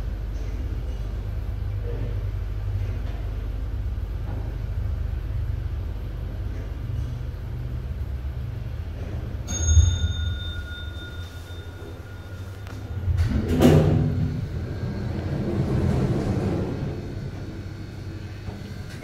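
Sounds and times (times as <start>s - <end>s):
lift rumbling in its shaft: 8.6s - 19.0s
bell-like arrival chime: 9.5s - 13.1s.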